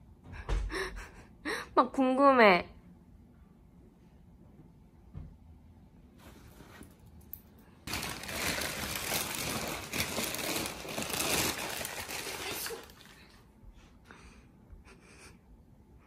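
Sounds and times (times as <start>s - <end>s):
plastic sheeting crinkling: 7.9s - 13.4s.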